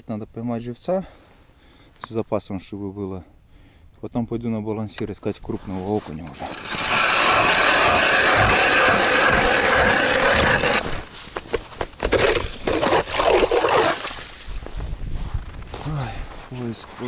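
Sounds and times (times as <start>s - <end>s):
ice crunching and scraping: 5.4s - 17.0s
ice auger grinding ice: 6.3s - 11.1s, 12.0s - 14.3s.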